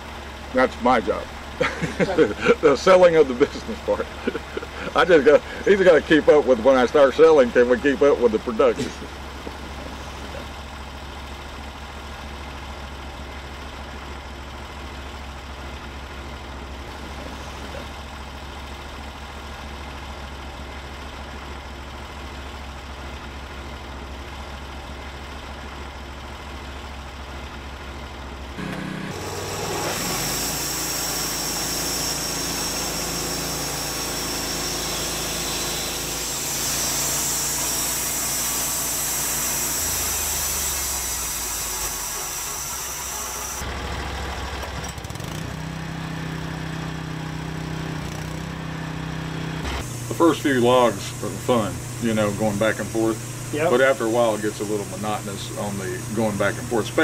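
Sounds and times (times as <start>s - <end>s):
sawmill engine idling and revving: 0.0s - 57.0s
band blade hissing through log: 28.6s - 43.6s.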